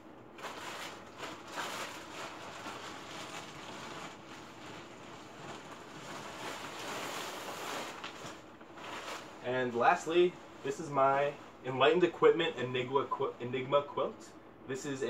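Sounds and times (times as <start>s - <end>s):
plastic bag rustling: 0.3s - 12.2s.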